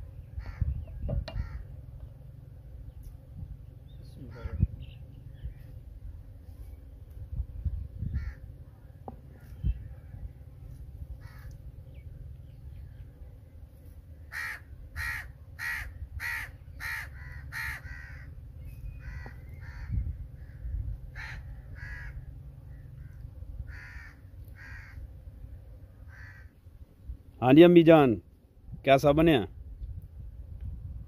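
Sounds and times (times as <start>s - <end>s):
crow cawing: 0.4s - 0.7s, 1.3s - 1.7s, 4.3s - 4.6s, 8.1s - 8.5s, 11.2s - 11.6s, 14.3s - 18.3s, 19.0s - 25.0s, 26.0s - 26.6s.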